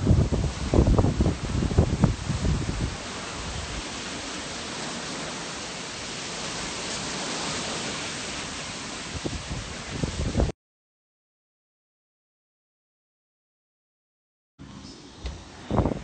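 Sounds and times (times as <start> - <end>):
wind buffeting microphone: 0.0 - 5.3, 9.0 - 10.5, 15.2 - 16.0
heavy rain: 0.0 - 10.5
strong wind: 0.0 - 10.5, 14.6 - 16.0.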